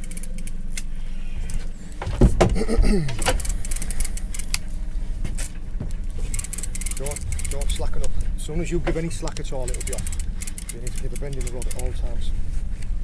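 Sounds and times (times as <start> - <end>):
fishing reel clicking: 0.0 - 0.9, 3.4 - 4.6, 6.3 - 7.8, 9.6 - 11.9
boat engine idling: 0.6 - 13.0.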